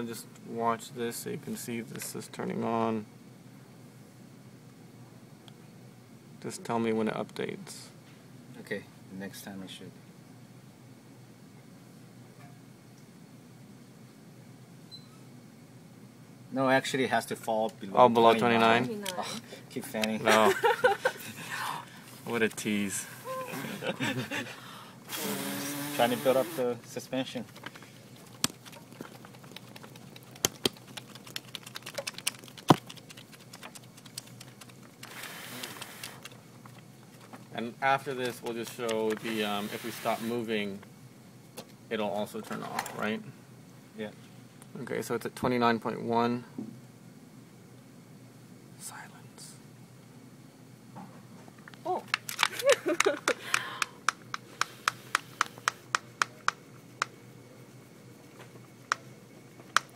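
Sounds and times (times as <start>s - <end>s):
rushing hiss of air: 25.1s - 26.7s, 35.1s - 36.2s, 39.2s - 40.4s
paper sheet crackling and clicking: 27.4s - 37.4s.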